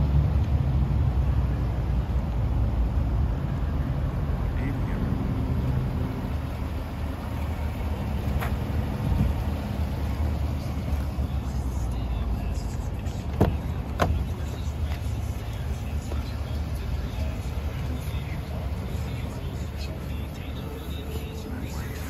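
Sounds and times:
pickup truck idling: 3.4 - 22.0
car door clicks opening: 13.3 - 15.1.

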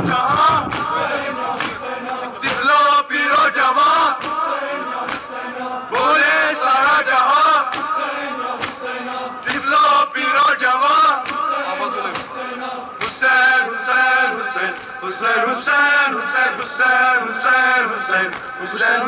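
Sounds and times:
men chanting in unison: 0.0 - 19.0
hands slapping chests: 0.6 - 3.6, 4.2 - 5.4, 7.7 - 8.0, 8.6 - 9.8, 11.2 - 13.4, 14.7 - 15.0, 18.3 - 18.5.

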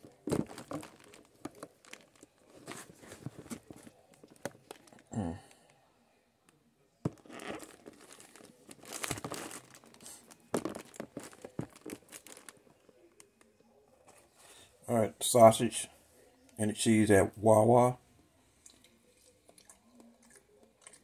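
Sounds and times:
paper wrapper crinkling: 0.0 - 5.1, 7.1 - 13.5.

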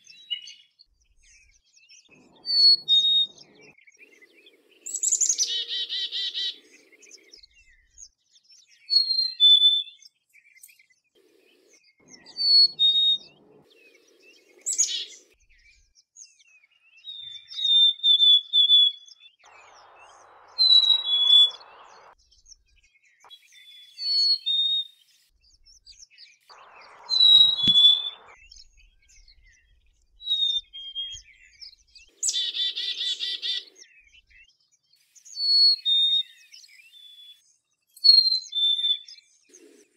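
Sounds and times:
chickadee whistled song: 0.0 - 39.8
chickadee calls: 2.1 - 7.4, 11.2 - 15.4, 19.5 - 22.2, 26.5 - 28.4, 32.1 - 33.8.

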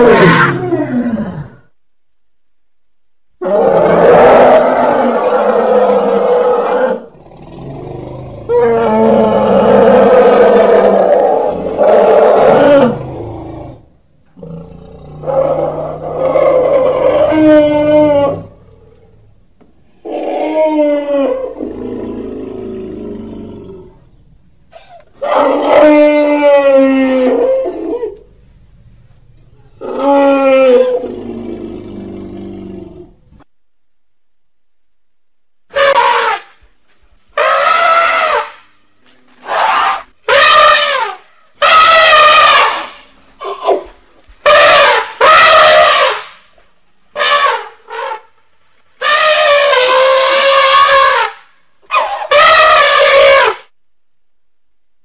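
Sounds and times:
elephant trumpeting call: 35.7 - 36.6, 37.4 - 38.6, 39.4 - 43.8, 44.4 - 46.4, 47.2 - 48.4, 49.0 - 53.7.

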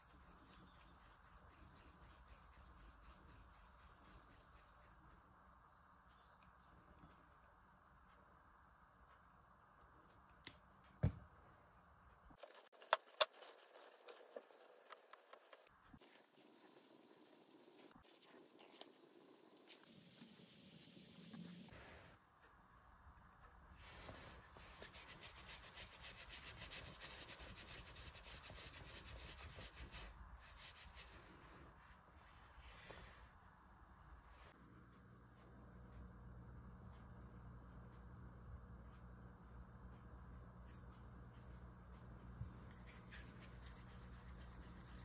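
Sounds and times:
palms rubbing dough: 0.0 - 5.4, 12.4 - 21.7, 23.8 - 32.1
low background hum: 0.0 - 45.0.

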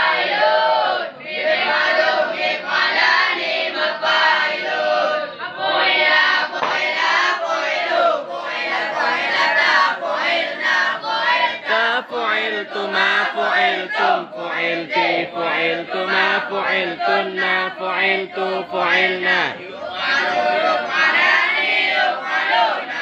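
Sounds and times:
boys chanting in unison: 0.0 - 23.0.

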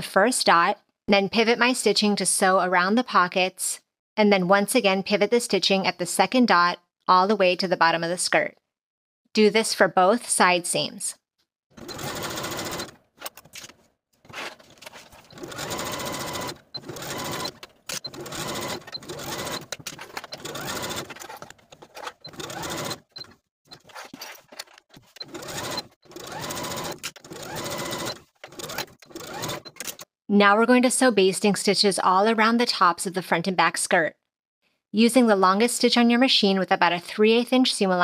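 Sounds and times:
sewing machine stitching: 11.8 - 13.7, 14.3 - 30.1.

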